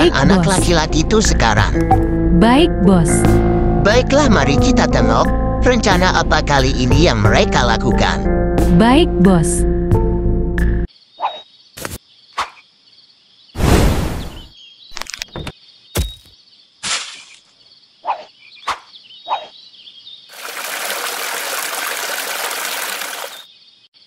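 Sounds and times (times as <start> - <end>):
chirping insects: 10.9 - 24.0
cartoon hits and whooshes: 13.6 - 14.5.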